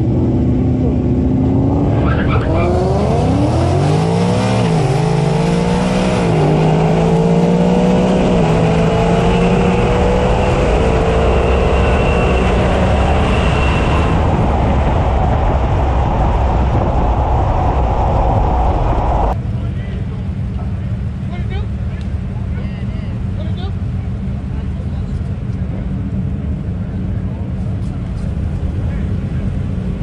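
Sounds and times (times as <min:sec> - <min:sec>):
supercharger whine: 0:00.0 - 0:22.3
truck engine at full throttle: 0:00.0 - 0:30.0.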